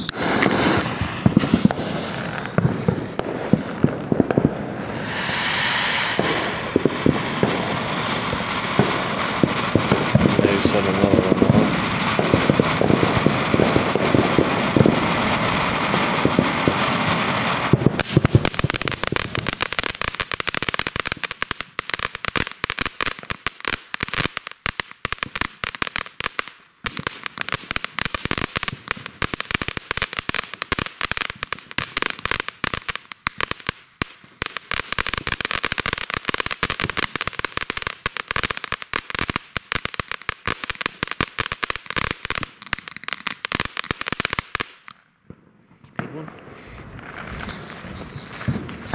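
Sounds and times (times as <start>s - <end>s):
firework fountain hissing: 0.0s - 44.9s
rapid crackling pops: 8.3s - 16.9s, 17.6s - 45.0s.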